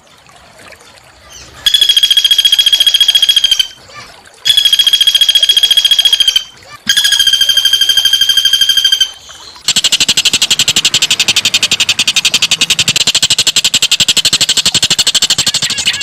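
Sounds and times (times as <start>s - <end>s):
harsh rattling bird trill: 4.5s - 16.0s.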